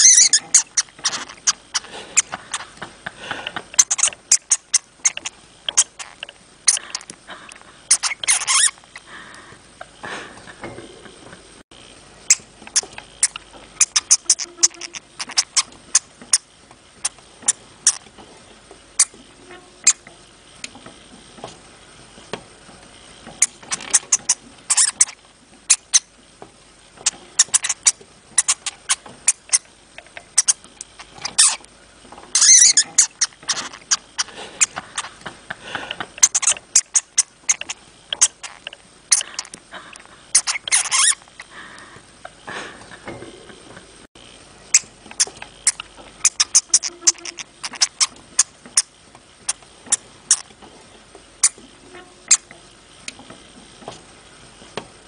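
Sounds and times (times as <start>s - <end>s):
hamster squeaking and clicking: 0.0s - 2.8s, 3.7s - 7.2s, 7.9s - 9.0s, 12.2s - 18.2s, 19.0s - 20.8s, 23.4s - 26.1s, 27.0s - 31.7s, 32.3s - 35.2s, 36.1s - 39.6s, 40.3s - 41.5s, 44.7s - 50.5s, 51.4s - 53.4s.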